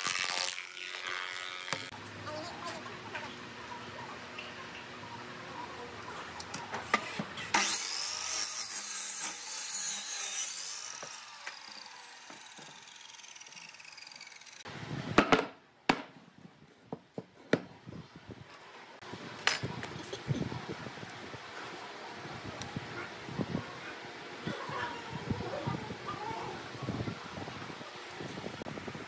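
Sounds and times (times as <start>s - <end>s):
miter saw cutting wood: 7.0s - 14.7s.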